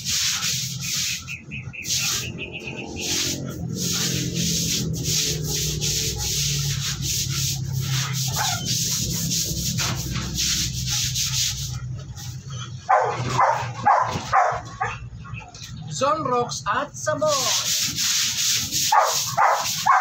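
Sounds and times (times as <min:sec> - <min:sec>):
broom scrubbing wet concrete floor: 0:00.0 - 0:14.8, 0:16.9 - 0:20.0
dog barking: 0:08.2 - 0:08.8, 0:12.8 - 0:15.5, 0:18.9 - 0:20.0.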